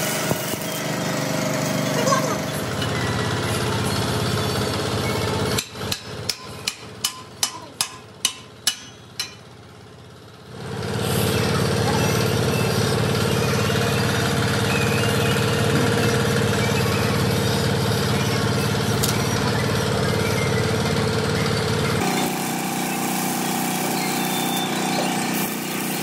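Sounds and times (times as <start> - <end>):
machine running with hum: 11.0 - 26.0.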